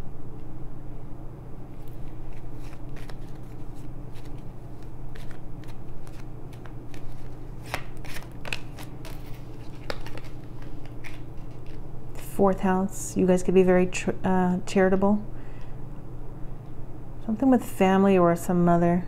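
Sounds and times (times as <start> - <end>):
cards being shuffled: 1.7 - 11.9.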